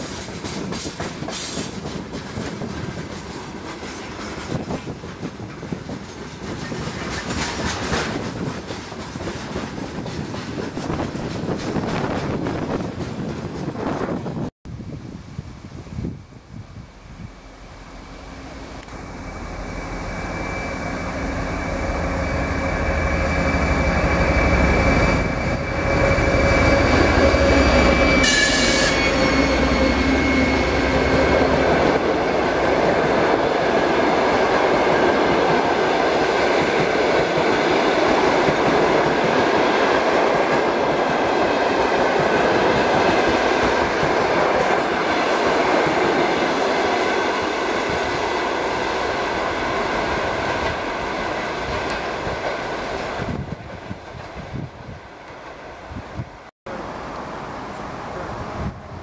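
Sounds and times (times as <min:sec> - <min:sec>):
train wheels on rails: 0:00.0 - 0:14.5, 0:17.2 - 0:59.0
diesel locomotive engine drone: 0:15.6 - 0:59.0.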